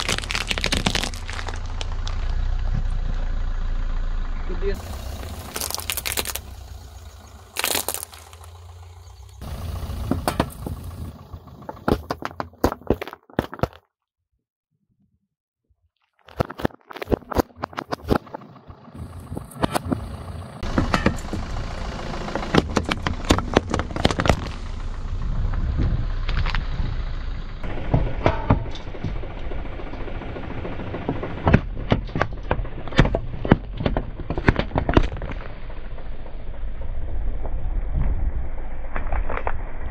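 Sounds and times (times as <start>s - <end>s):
plastic and cans cracking under tyre: 0.0s - 2.9s, 4.8s - 10.8s, 11.6s - 13.9s, 16.1s - 18.4s, 22.4s - 24.7s, 25.8s - 26.7s, 31.0s - 36.3s, 38.9s - 39.9s
low car rumble: 0.0s - 12.6s, 17.2s - 39.9s.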